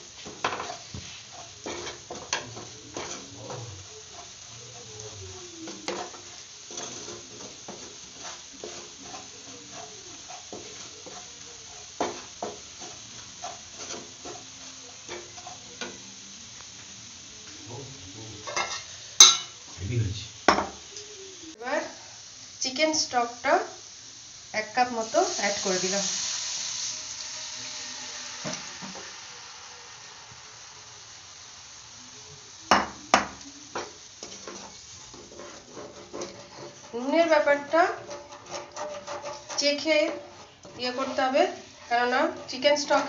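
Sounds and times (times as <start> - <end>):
spatula scraping frying pan: 0.0 - 16.1, 18.4 - 19.6, 32.7 - 43.0
butter and flour sizzling: 0.0 - 43.0.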